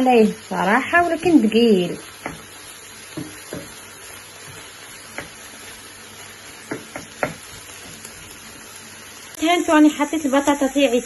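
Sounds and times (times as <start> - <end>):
meat sizzling in a pan: 0.0 - 11.0
spatula tapping and scraping pan: 2.0 - 5.8, 6.5 - 8.6.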